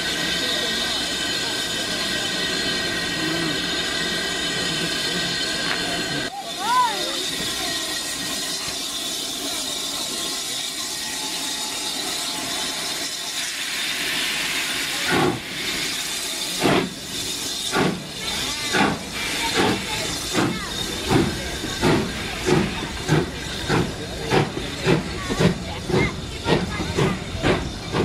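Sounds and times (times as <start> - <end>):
steam hissing from locomotive: 0.0 - 28.0
steam locomotive exhaust beats: 0.0 - 28.0.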